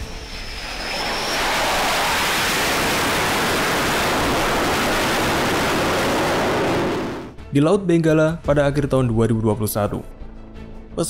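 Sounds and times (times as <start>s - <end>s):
fighter jet engines roaring: 0.0s - 7.4s.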